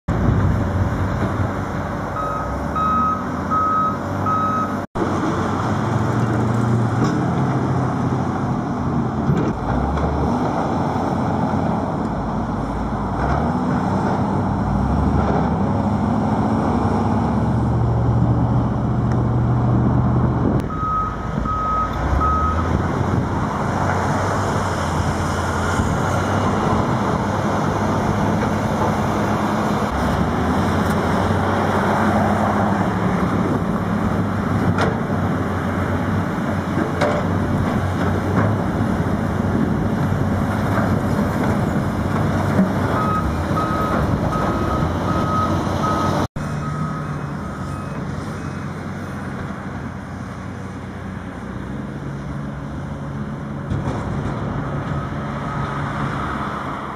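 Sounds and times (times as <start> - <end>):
diesel engines running under load: 0.1 - 56.9
reversing alarm beeping: 2.2 - 4.8, 20.7 - 22.6, 43.0 - 48.6.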